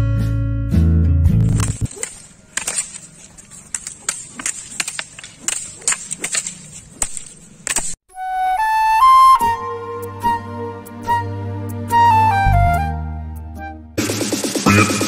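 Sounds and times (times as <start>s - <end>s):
bamboo staffs clacking: 1.5s - 8.0s
flute tune: 8.1s - 14.0s.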